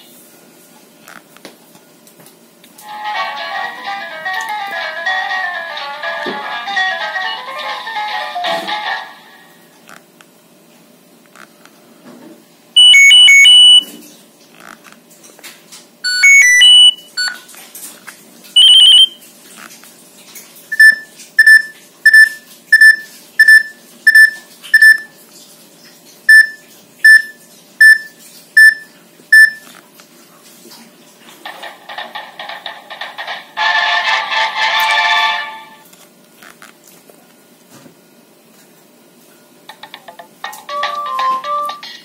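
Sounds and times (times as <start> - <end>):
short single-pitch beeps: 12.8 - 13.8, 16.1 - 17.4, 18.6 - 19.2, 20.8 - 25.1, 26.3 - 29.6
electronic alarm tone bursts: 12.8 - 13.9, 16.1 - 17.3, 18.6 - 19.2.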